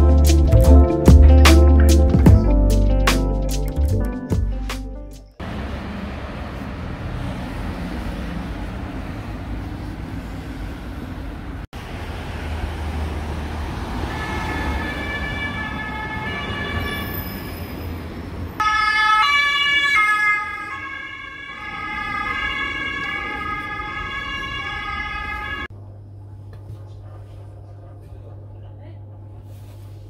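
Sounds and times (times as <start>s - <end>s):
city street traffic: 5.4s - 25.8s.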